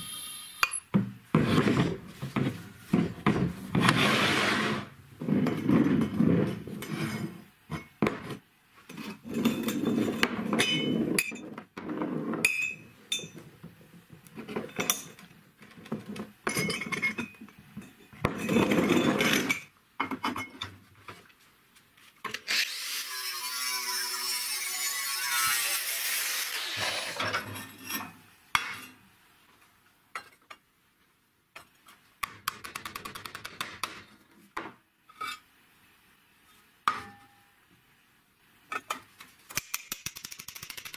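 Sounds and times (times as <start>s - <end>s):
power tool cutting: 22.5s - 27.2s.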